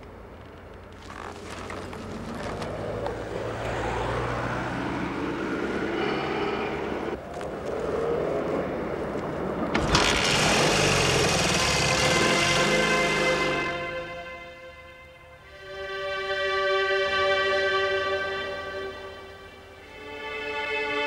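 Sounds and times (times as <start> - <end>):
vehicle engine running: 9.7 - 14.3.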